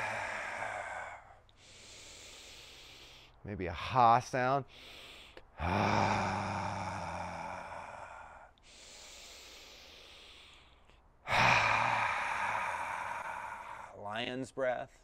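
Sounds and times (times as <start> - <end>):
man exhaling loudly: 0.0 - 3.1, 5.6 - 10.2, 11.3 - 14.0
quiet inhale: 0.0 - 3.4, 4.7 - 5.6, 7.0 - 14.0.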